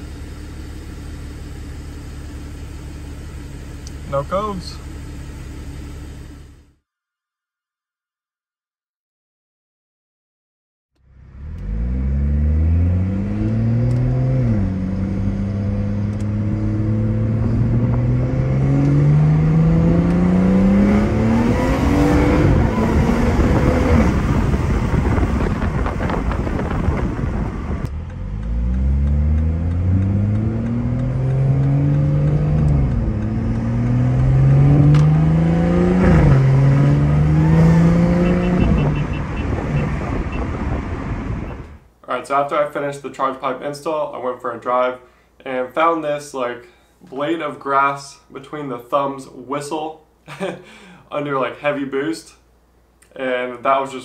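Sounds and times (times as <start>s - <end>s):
car engine revving through gears: 11.0s - 41.8s.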